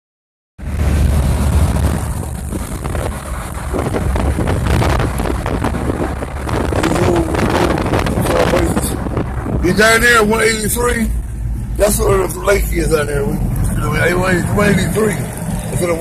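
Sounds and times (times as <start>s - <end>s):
vehicle road and engine rumble: 0.6s - 16.0s
wind buffeting microphone: 1.4s - 10.0s.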